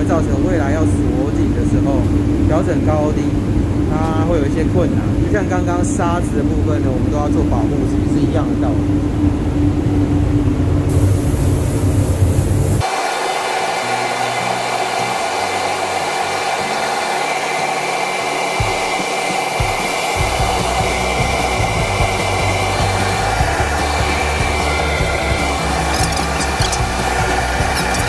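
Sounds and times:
steady tones: 8.6 - 28.0
air extraction rushing: 10.8 - 28.0
paint spray gun hissing: 10.9 - 28.0.

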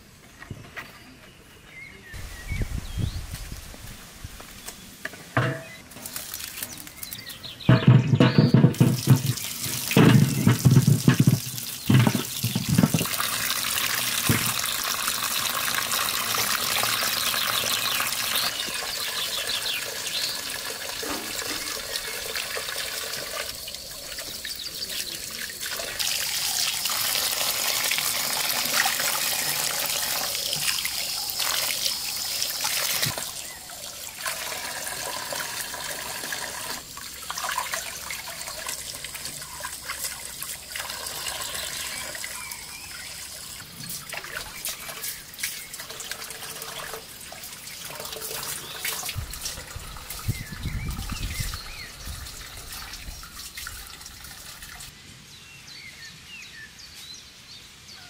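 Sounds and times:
water running and splashing: 3.3 - 54.9
heavy knocks: 7.7 - 9.4.

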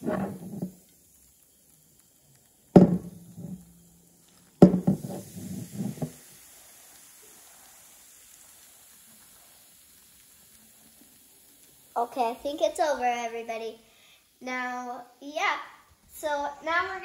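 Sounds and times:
liquid fizzing in a glass flask: 0.0 - 13.3
sharp knocks: 2.8 - 3.1, 4.6 - 5.0.

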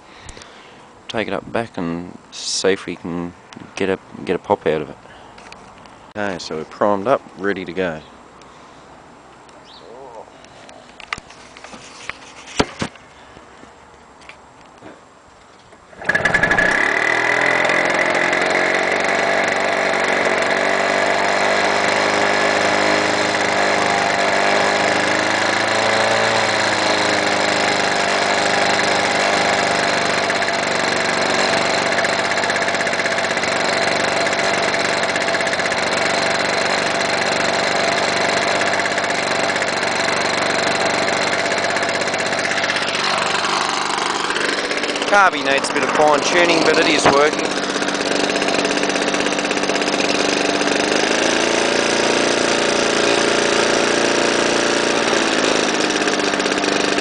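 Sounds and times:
lawn mower engine running: 15.7 - 57.0.

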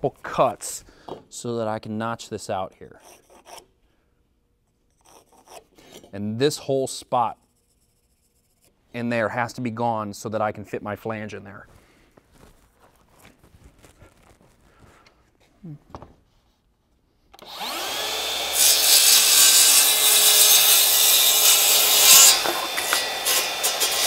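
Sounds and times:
faint footsteps: 11.6 - 16.1
saw cutting plywood: 17.4 - 24.0.

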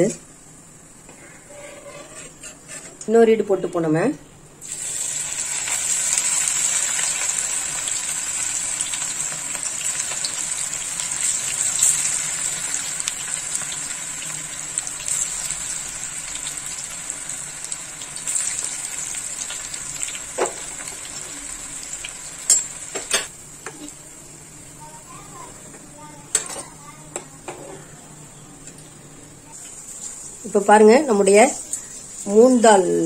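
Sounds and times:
deep-frying sizzle in oil: 4.6 - 26.5, 29.4 - 33.0.

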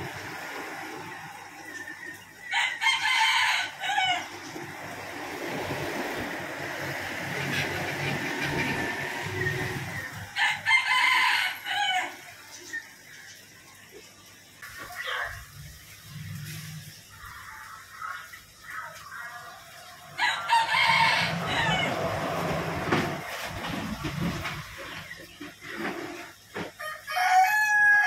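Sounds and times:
rooster crowing: 2.5 - 4.4, 10.3 - 12.2, 20.2 - 22.6, 26.8 - 28.0.

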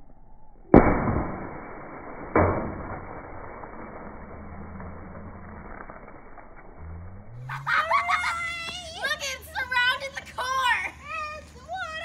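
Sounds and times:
watermelon smashing on asphalt: 0.8 - 6.6.

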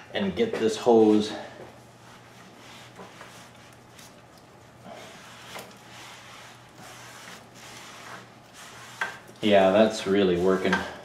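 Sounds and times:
cloth rubbing rubber hose: 2.0 - 10.7.

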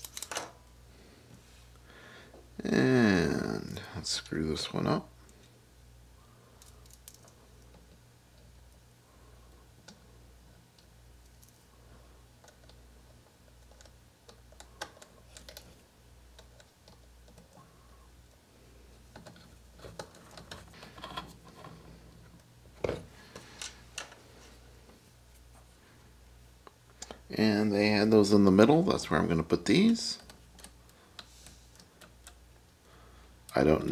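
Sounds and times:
faint low hum: 0.0 - 33.9
clicks and taps of small parts: 13.6 - 15.7.

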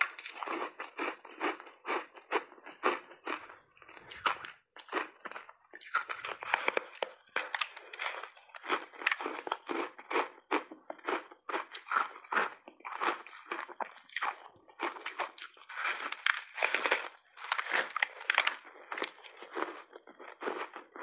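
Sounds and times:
biting and chewing frozen ice: 0.0 - 21.0.

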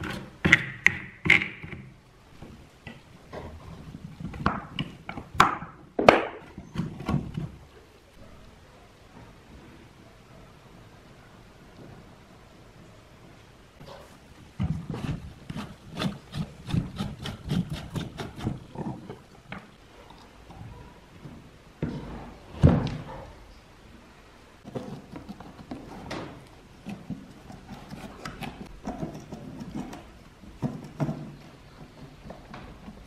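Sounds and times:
knocks and scrapes on metal: 24.6 - 33.0.

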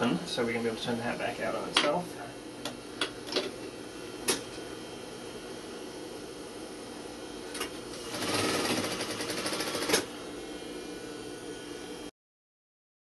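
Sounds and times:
sewing machine stitching: 7.9 - 10.1.

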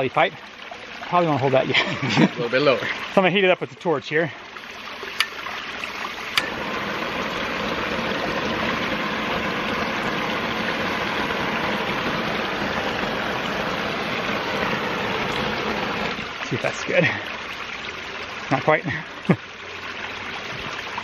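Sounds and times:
propane torch roaring hiss: 6.0 - 16.2.

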